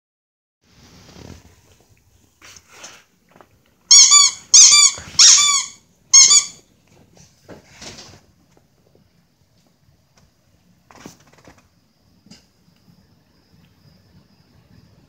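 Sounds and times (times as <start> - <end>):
squeaky dog toy squeezed: 3.9 - 6.6.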